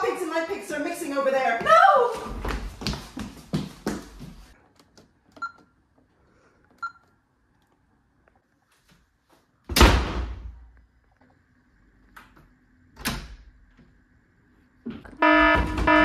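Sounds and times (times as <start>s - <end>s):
door slamming shut: 9.7s - 10.6s.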